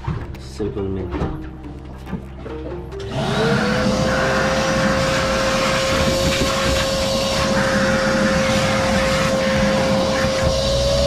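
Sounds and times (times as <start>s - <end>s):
shop vacuum running: 3.0s - 11.0s.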